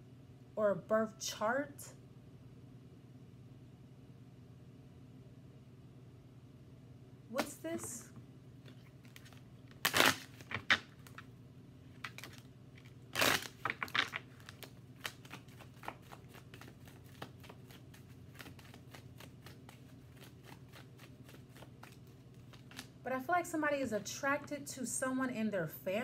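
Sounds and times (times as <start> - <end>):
cards being shuffled: 8.6 - 11.3, 12.0 - 23.0.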